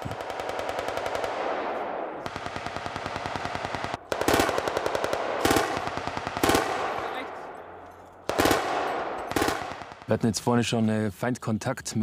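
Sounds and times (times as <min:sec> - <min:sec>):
machine gun automatic fire: 0:00.0 - 0:01.5, 0:02.2 - 0:07.0, 0:08.3 - 0:10.0.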